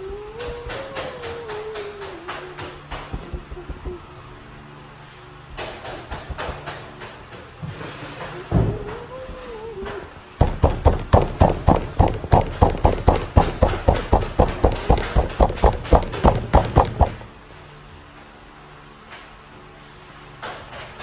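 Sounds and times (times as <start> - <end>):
hands patting bread dough: 10.4 - 17.3.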